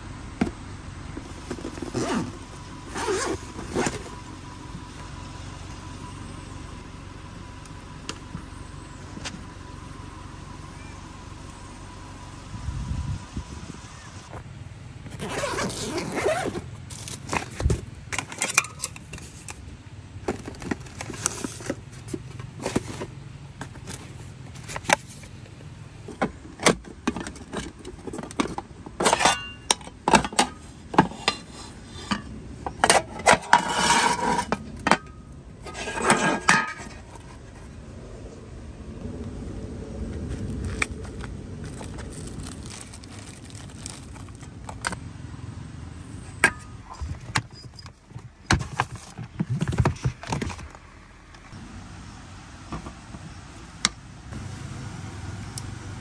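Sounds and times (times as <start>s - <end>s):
objects scraping: 27.1s - 37.7s.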